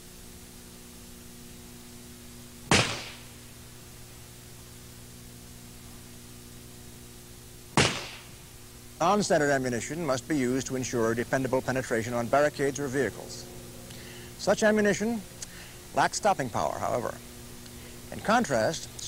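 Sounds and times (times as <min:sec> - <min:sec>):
revolver shots: 0:02.7 - 0:03.4, 0:07.8 - 0:08.4.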